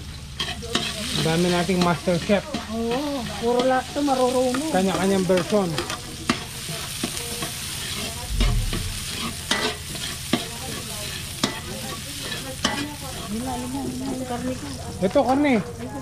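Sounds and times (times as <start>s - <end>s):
food sizzling in a pan: 0.0s - 16.0s
low thump: 8.3s - 9.1s.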